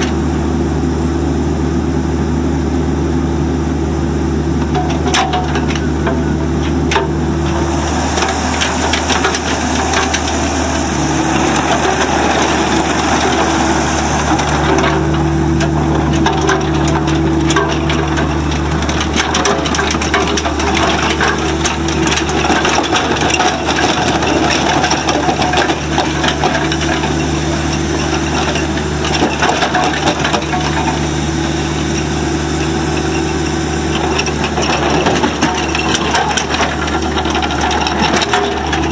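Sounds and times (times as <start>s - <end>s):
diesel engine running: 0.0s - 38.9s.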